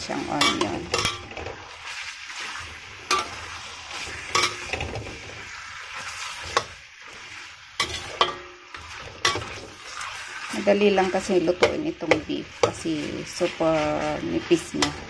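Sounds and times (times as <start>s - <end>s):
food sizzling in a pan: 0.0s - 15.0s
spatula clacking against pan: 0.4s - 1.5s, 3.1s - 3.5s, 4.2s - 4.9s, 6.2s - 6.8s, 7.8s - 13.1s, 14.7s - 15.0s.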